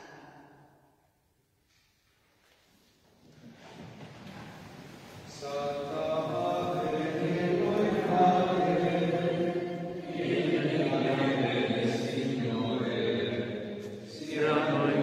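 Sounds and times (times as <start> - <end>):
voices singing a chant-like hymn: 5.3 - 15.0.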